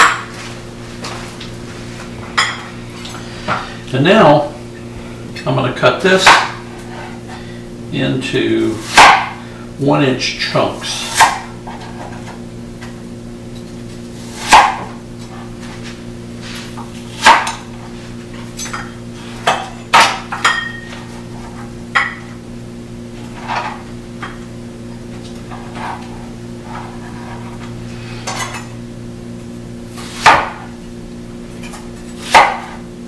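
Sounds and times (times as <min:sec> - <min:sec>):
steady low hum: 0:00.0 - 0:33.0
knife chopping on plastic board: 0:06.2 - 0:06.6, 0:08.8 - 0:09.4, 0:14.4 - 0:14.9, 0:17.2 - 0:17.6, 0:30.1 - 0:30.7, 0:32.2 - 0:32.8.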